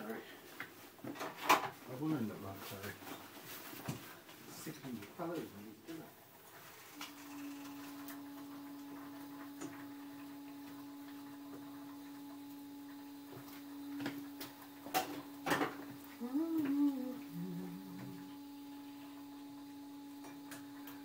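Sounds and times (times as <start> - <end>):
kitchen appliance humming: 4.6 - 21.0
voice murmuring: 16.2 - 18.3.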